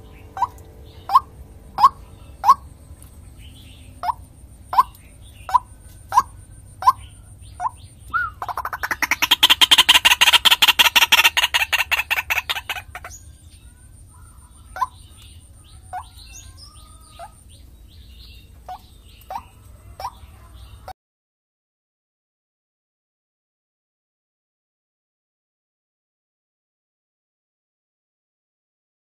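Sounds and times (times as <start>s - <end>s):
waterhen calling: 0.0s - 2.7s, 3.9s - 13.2s, 14.2s - 17.4s, 18.6s - 20.6s.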